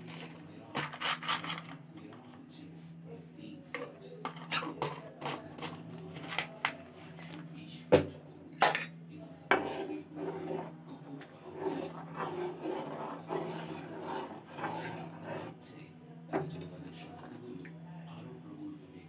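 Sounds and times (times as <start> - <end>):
steady low hum: 0.0 - 19.0
kitchen utensils clattering: 0.8 - 1.7, 8.6 - 9.0
metal spoon stirring in a pot: 9.5 - 10.8, 11.4 - 15.7.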